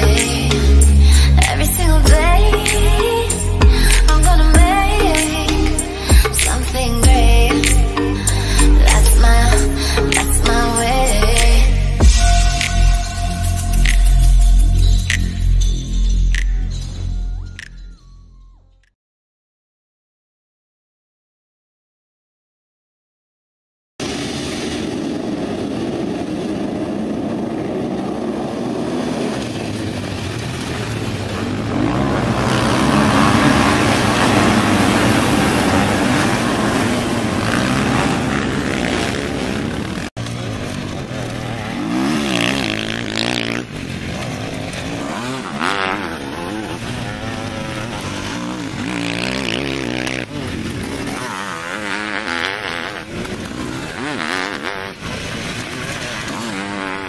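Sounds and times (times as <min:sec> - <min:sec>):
racing engines roaring together: 0:00.0 - 0:15.7, 0:25.6 - 0:57.0
single engine revving: 0:31.3 - 0:57.0.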